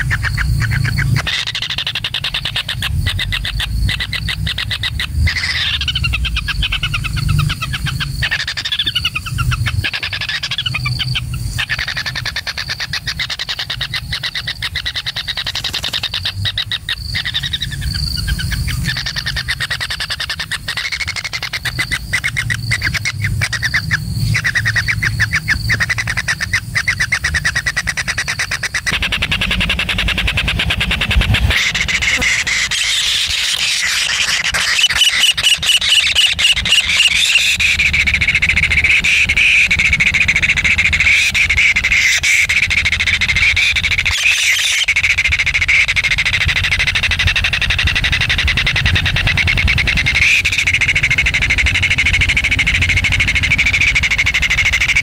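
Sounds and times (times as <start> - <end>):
low steady rumble: 0.0 - 34.6, 35.6 - 55.0
nestlings rasping calls: 0.0 - 55.0.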